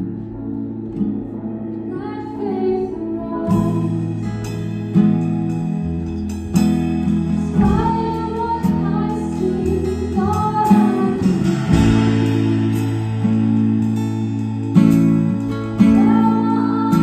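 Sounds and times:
woman singing: 1.8s - 4.3s, 7.5s - 12.1s, 15.8s - 17.0s
acoustic guitar strumming chords: 4.4s - 17.0s.

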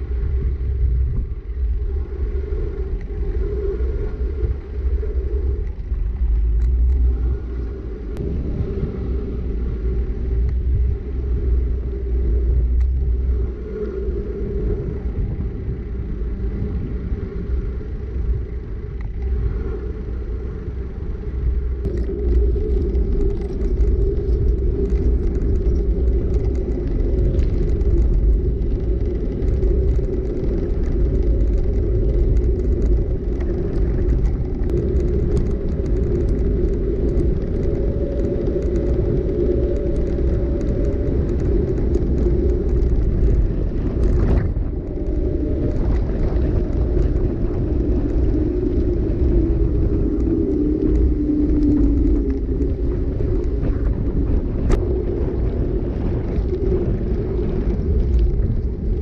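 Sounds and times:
bike tyre hum: 0.0s - 59.0s
small clicks and crackles: 0.0s - 59.0s
wind rumbling on microphone: 0.0s - 59.0s.

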